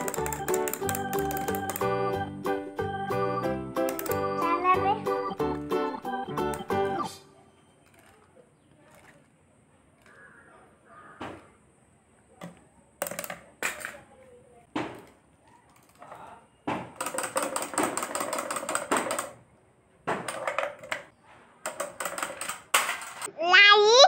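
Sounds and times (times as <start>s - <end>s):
clockwork toy clattering: 0.0s - 1.8s, 7.8s - 10.2s, 16.9s - 19.4s, 20.2s - 23.3s.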